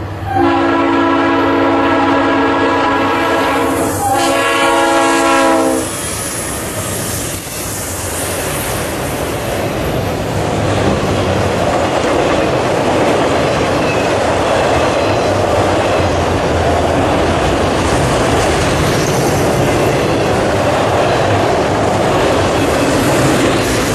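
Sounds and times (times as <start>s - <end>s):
locomotive horn blowing: 0.3s - 6.0s
freight cars rumbling and clacking: 8.4s - 23.9s.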